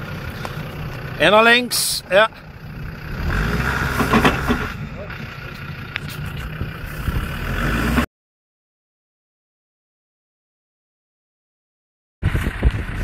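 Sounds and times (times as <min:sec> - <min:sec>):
diesel engine running under load: 0:00.0 - 0:08.1, 0:12.2 - 0:13.0.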